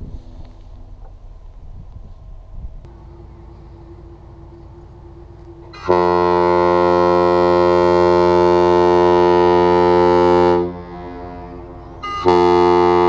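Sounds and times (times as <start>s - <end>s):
faint steady hum: 0.0s - 13.0s
ship horn blast: 2.9s - 13.0s.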